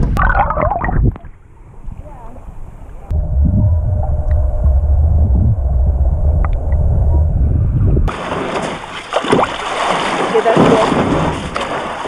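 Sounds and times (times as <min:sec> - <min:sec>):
muffled underwater rumble: 0:00.0 - 0:08.1.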